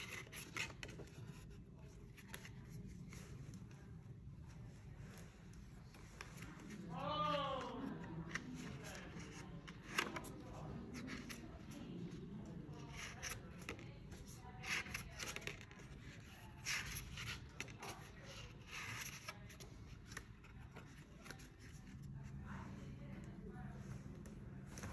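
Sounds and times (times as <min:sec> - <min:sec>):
paper pages rustling: 0:00.0 - 0:03.9, 0:07.6 - 0:22.5.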